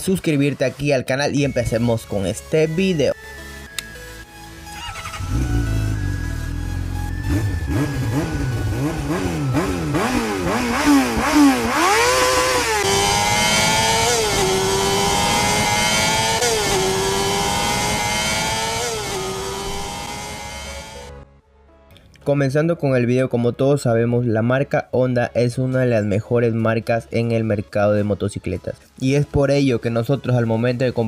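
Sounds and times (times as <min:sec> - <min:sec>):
motorcycle engine revving: 0:04.8 - 0:21.1.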